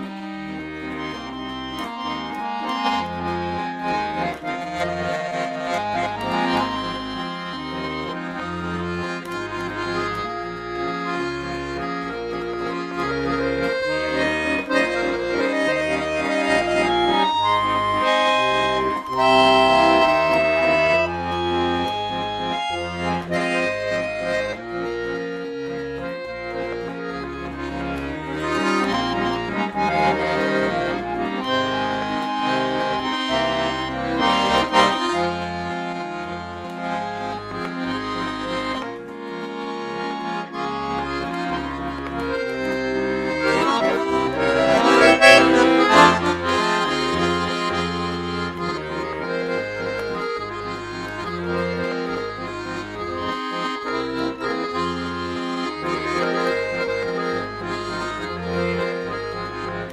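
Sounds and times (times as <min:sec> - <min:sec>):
button accordion playing a tune: 0:00.0 - 0:59.9.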